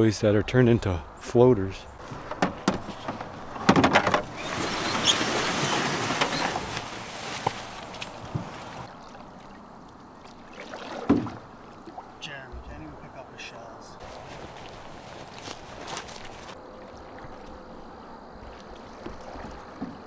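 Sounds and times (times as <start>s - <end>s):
boat hull scraping over brush: 2.0s - 8.9s, 14.0s - 16.6s.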